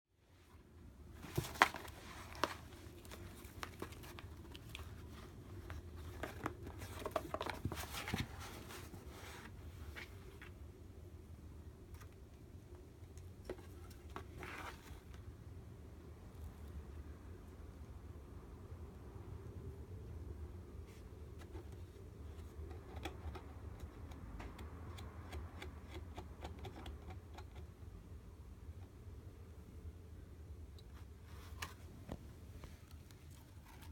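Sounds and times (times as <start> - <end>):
cat rustling in cardboard box: 1.0 - 10.6, 13.5 - 15.2.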